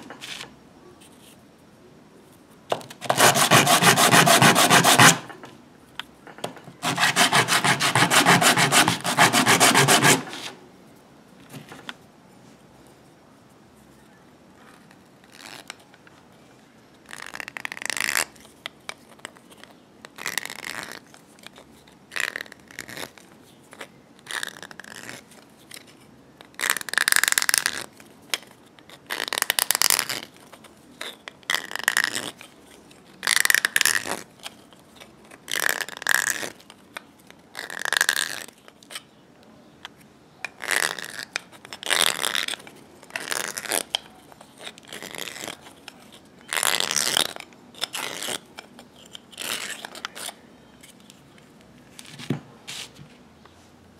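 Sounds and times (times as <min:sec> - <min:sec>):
metal file rasping on plastic tube: 0:03.0 - 0:05.3, 0:06.8 - 0:10.6.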